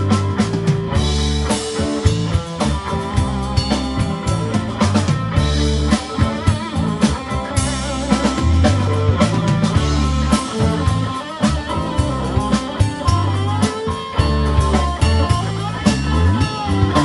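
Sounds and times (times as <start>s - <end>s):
bass line: 0.0s - 17.0s
drum kit: 0.0s - 17.0s
lead electric guitar: 0.0s - 17.0s.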